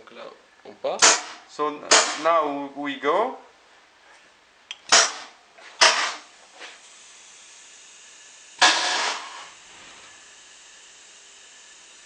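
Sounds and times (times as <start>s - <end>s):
compressed air blast: 1.0s - 2.3s, 4.8s - 12.0s.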